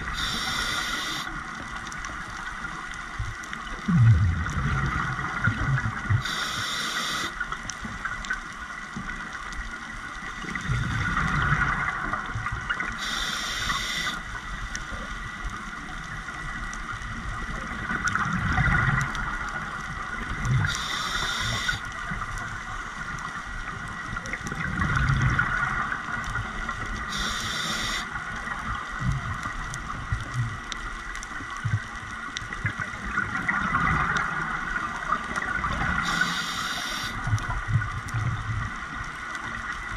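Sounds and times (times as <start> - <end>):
regulator inhalation hiss: 0.0 - 1.4, 6.2 - 7.4, 13.0 - 14.3, 20.7 - 21.9, 27.1 - 28.1, 36.0 - 37.2
exhaled bubbles gurgling: 0.0 - 8.5, 9.1 - 39.9.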